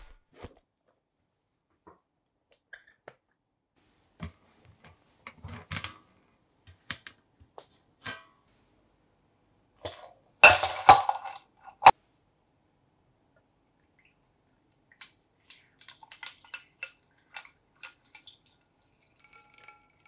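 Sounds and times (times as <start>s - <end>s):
glass bowls and ice clinking: 9.8s - 11.9s, 15.8s - 20.0s.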